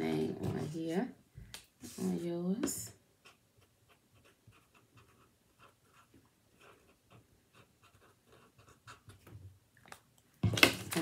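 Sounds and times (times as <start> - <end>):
pen scratching on paper: 3.2 - 9.2.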